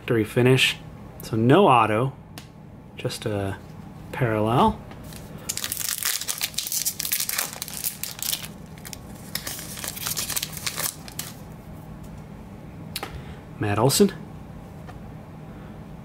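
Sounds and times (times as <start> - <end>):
plastic wrapper tearing and crinkling: 5.1 - 11.4.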